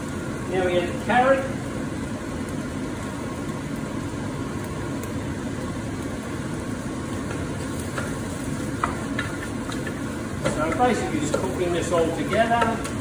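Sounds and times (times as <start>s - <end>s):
stir-fry hissing in wok: 6.3s - 13.0s.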